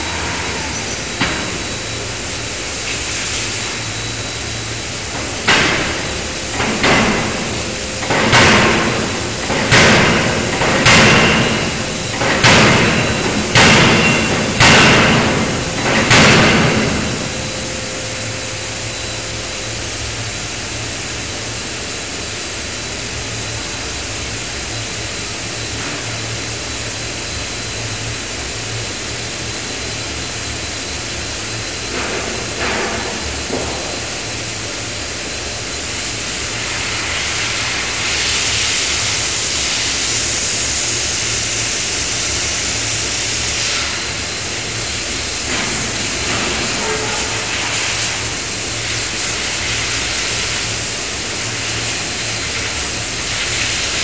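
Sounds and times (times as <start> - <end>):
machine hum: 0.0 - 54.0
forging hammer striking steel: 5.2 - 18.4
hiss: 31.0 - 54.0.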